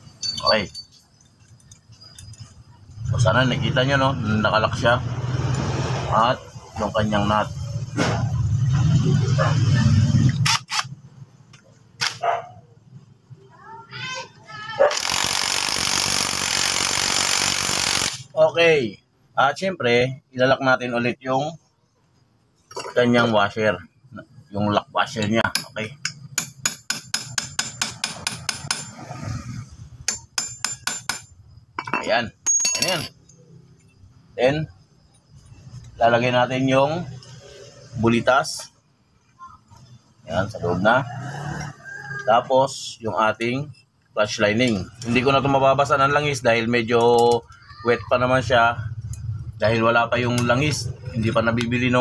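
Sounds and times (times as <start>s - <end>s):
dog barking: 9.3s - 9.8s, 12.2s - 12.7s, 14.8s - 15.0s.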